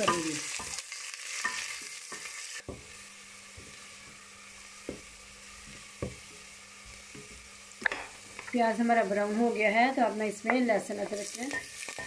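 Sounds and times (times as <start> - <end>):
onions sizzling in oil: 0.0 - 12.0
wooden spatula knocking pot: 6.0 - 6.4.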